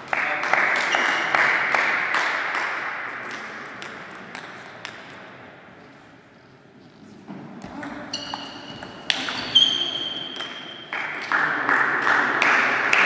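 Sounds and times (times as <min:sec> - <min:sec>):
people clapping: 0:00.0 - 0:04.3, 0:10.9 - 0:13.0.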